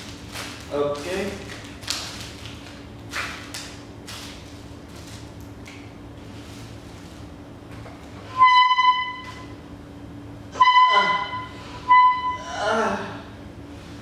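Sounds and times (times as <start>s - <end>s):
loud steady beeps: 8.3s - 9.5s, 10.6s - 12.5s.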